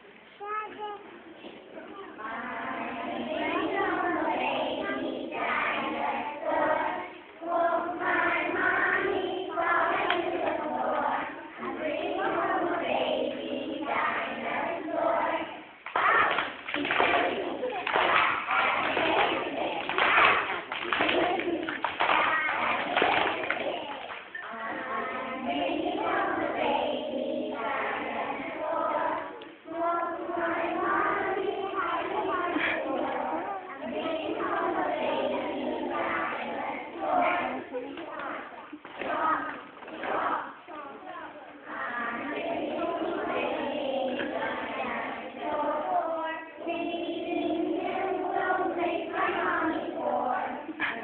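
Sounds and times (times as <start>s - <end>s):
children singing in chorus: 1.4s - 51.0s.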